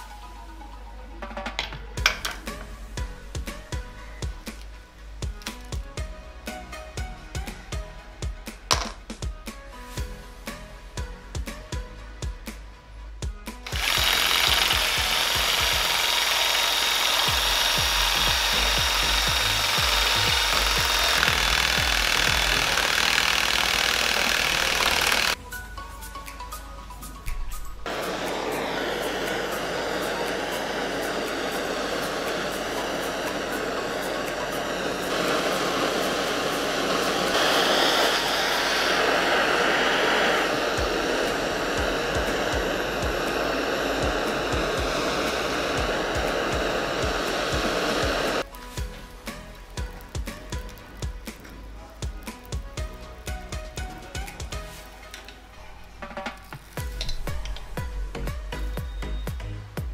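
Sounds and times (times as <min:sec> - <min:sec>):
gas torch flame hissing: 0:02.0 - 0:07.8, 0:13.6 - 0:25.4, 0:27.3 - 0:59.9
power saw cutting copper: 0:13.6 - 0:25.4, 0:27.9 - 0:48.5.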